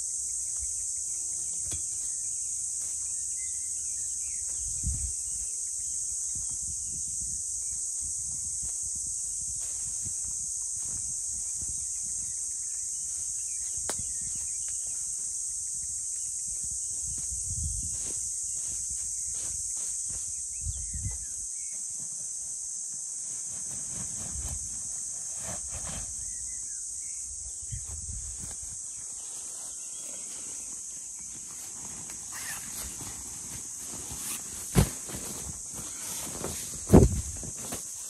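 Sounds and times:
insects chorus: 0.0 - 38.0
rustles and knocks of tent: 16.6 - 26.5, 29.8 - 38.0.

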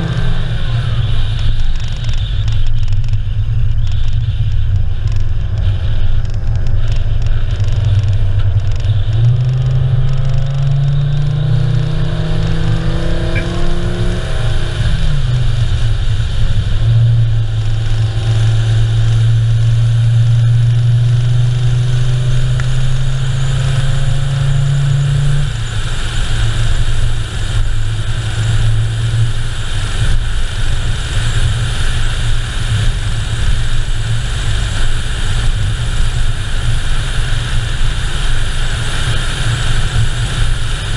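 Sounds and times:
tyre and wind noise: 0.0 - 23.4
car engine drone: 0.0 - 40.9.

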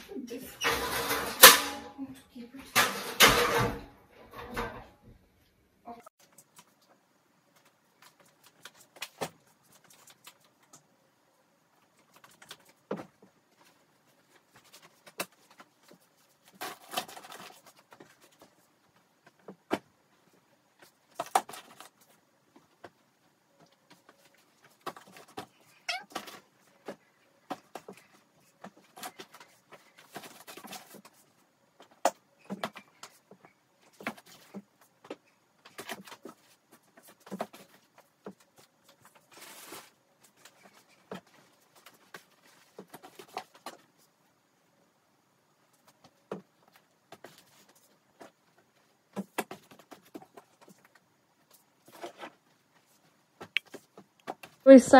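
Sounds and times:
plastic bags rustling and crinkling: 35.5 - 44.0.

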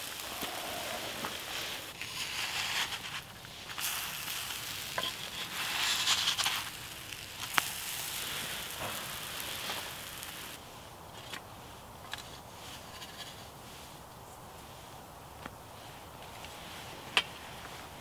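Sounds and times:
pancakes sizzling in fat: 0.0 - 10.6
crackles and sharp crack: 0.0 - 13.5.

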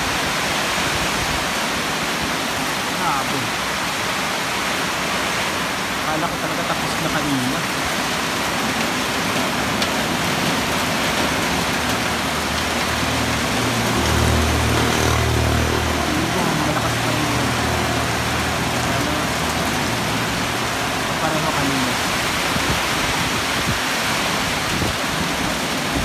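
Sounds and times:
strong wind: 0.0 - 6.0, 21.9 - 26.0
heavy rain pouring: 0.0 - 26.0.

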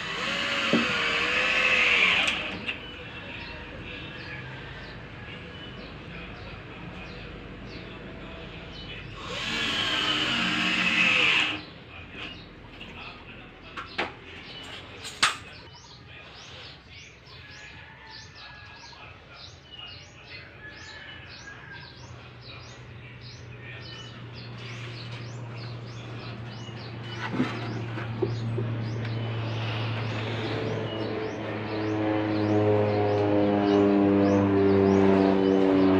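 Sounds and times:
cordless drill running: 0.0 - 2.6, 9.2 - 11.6.

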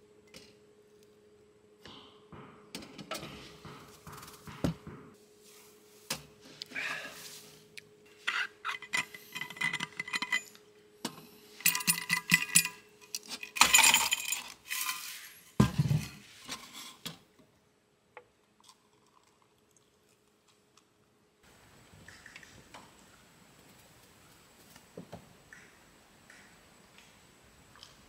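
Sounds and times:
ice cubes clinking into metal mug: 11.6 - 12.8.

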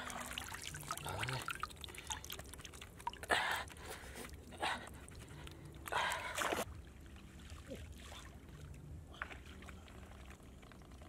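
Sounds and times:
water dripping into metal basin: 0.0 - 3.4.

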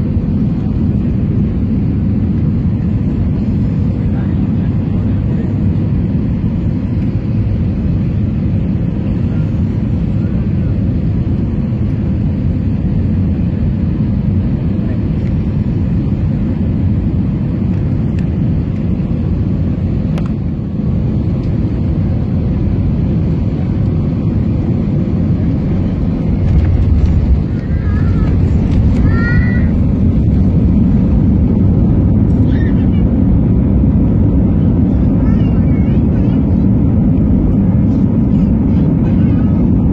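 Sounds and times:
jet engines rumbling: 0.0 - 39.9
rushing air: 22.1 - 34.9.

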